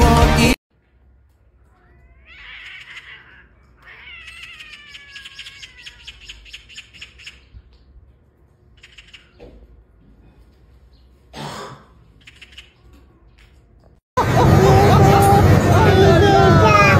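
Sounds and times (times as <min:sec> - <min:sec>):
cat yowling: 0:01.7 - 0:06.4.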